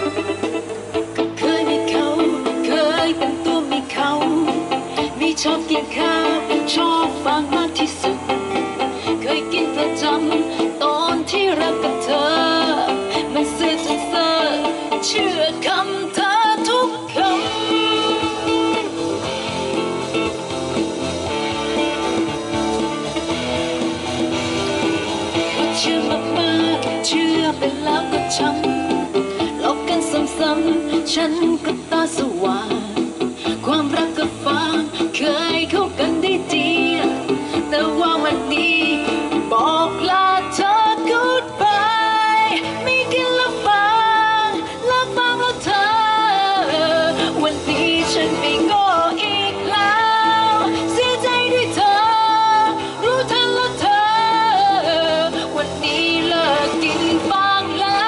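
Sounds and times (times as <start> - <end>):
woman singing into a microphone: 0.0 - 20.1, 25.0 - 58.0
electric guitar notes: 0.0 - 58.0
bass line: 17.2 - 29.8.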